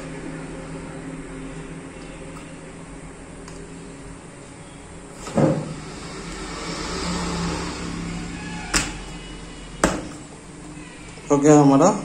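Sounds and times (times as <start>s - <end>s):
dull thump: 9.8s - 10.3s.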